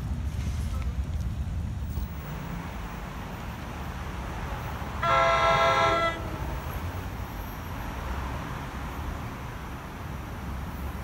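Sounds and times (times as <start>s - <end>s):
train horn blast: 5.0s - 6.4s.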